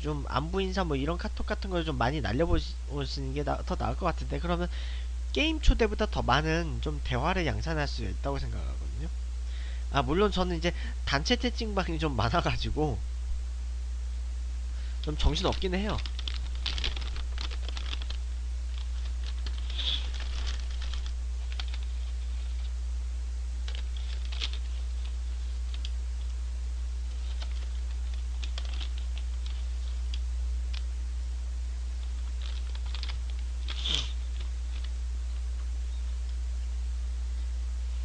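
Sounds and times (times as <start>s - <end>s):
steady low hum: 0.0s - 38.0s
paper bag crinkling: 15.4s - 22.7s, 23.7s - 25.9s, 27.1s - 30.0s, 32.0s - 34.9s.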